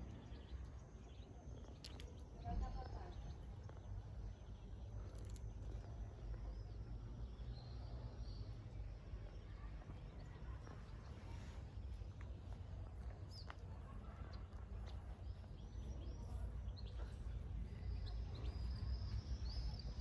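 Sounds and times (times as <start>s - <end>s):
faint bird chirps: 12.8s - 20.0s.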